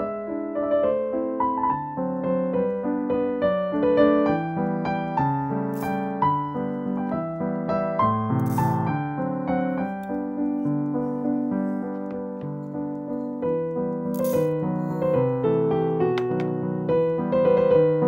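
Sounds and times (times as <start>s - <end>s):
piano music: 0.0s - 18.0s
seeds rattling into metal pan: 5.7s - 6.2s, 8.4s - 8.9s, 14.1s - 15.0s.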